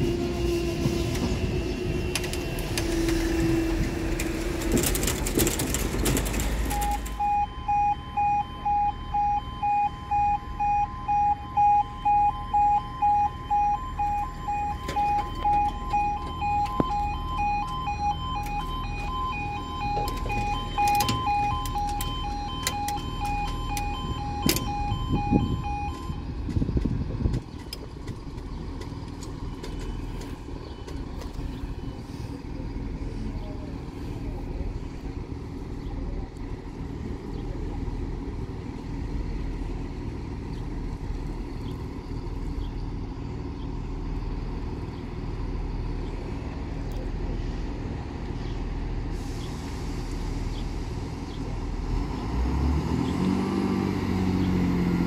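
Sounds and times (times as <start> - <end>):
heavy low rumble: 0.0 - 51.9
diesel train rumbling: 0.0 - 55.0
level crossing alarm: 6.5 - 26.4.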